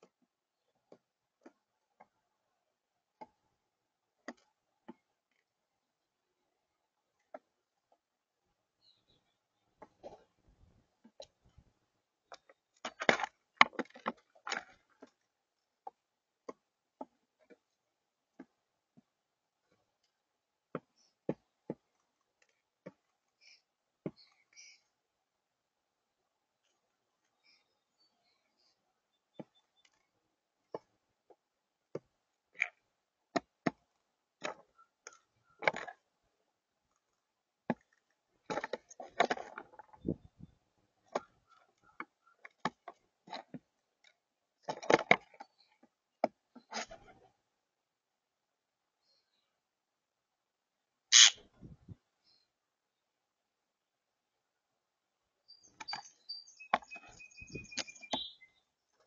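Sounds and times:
beaks pecking on feeder table: 51.1 - 51.4, 55.6 - 59.0
bird scuffling: 51.1 - 51.4, 55.7 - 58.4.

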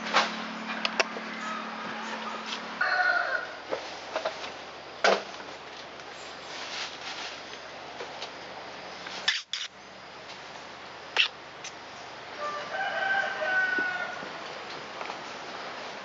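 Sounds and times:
drawn-out bird call: 0.6 - 3.6.

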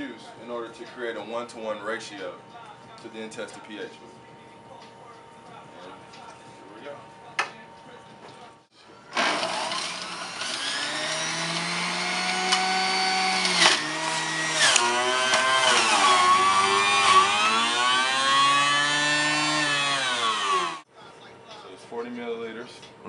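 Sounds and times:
electric juicer motor whine: 9.0 - 20.8.

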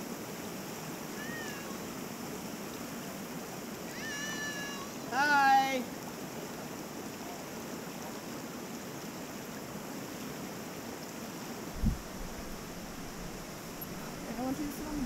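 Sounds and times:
creek water flowing over rocks: 0.0 - 15.0
short low thump: 11.8 - 13.3.

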